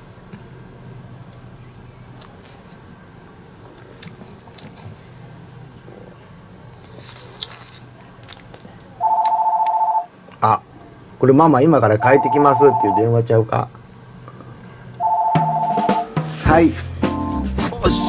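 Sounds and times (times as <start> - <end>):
phone ringing: 9.0 - 10.1, 12.0 - 13.3, 15.0 - 16.2.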